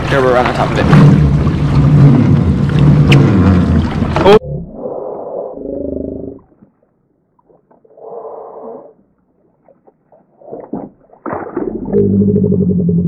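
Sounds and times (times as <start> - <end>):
low drawn-out groan: 0.0 - 4.9.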